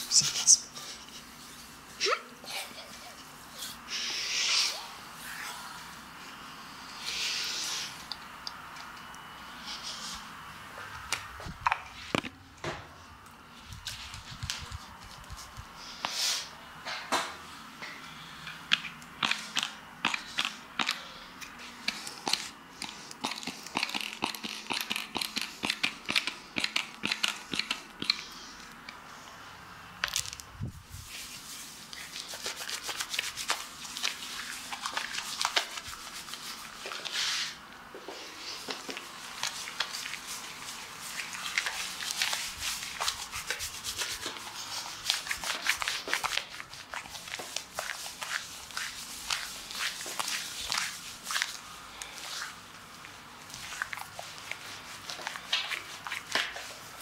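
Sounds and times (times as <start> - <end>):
hands rubbing lather on skin: 31.0 - 37.6, 38.5 - 57.0.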